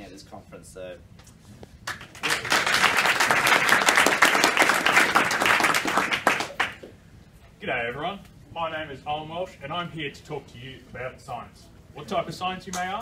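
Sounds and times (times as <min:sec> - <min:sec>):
audience applauding: 0:01.8 - 0:06.9.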